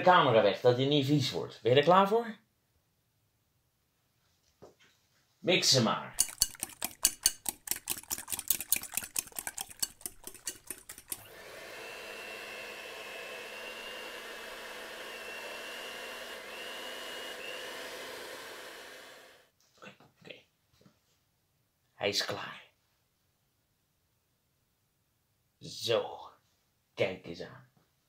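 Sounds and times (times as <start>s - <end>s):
utensil clattering against bowl: 6.2s - 11.2s
electric mixer whining: 11.0s - 19.5s.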